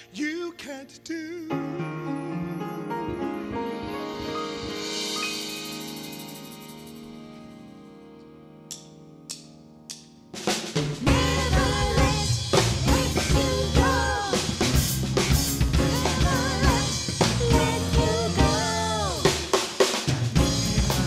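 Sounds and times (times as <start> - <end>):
gospel band playing: 1.5 - 7.3, 10.4 - 21.0.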